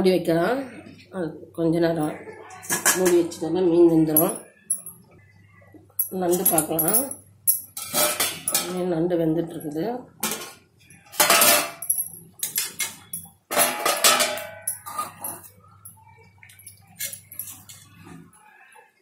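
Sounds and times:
metal lid clattering on pot: 12.4 - 15.4.

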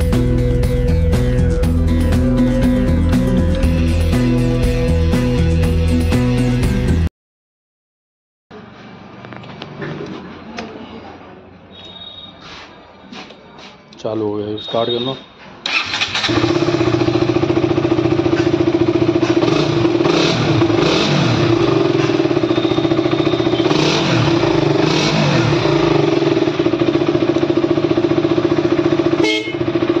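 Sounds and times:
motorcycle engine idling: 15.7 - 30.0.

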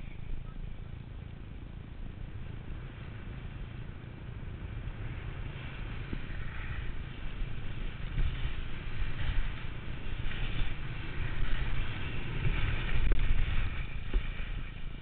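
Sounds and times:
wind rumbling on microphone: 0.0 - 15.0
sliding over packed snow: 2.0 - 15.0.

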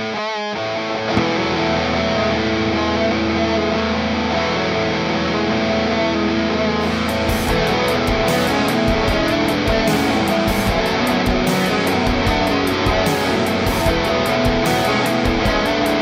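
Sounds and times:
bass guitar: 0.0 - 16.0
distorted electric guitar: 0.0 - 16.0
drums steady beat: 7.1 - 16.0.

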